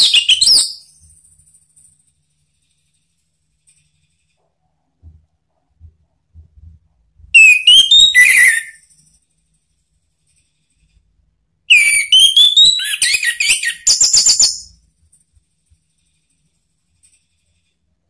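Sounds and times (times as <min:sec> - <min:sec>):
thrush singing whistled trills: 0:00.0 - 0:00.9, 0:07.4 - 0:09.0, 0:11.7 - 0:14.8.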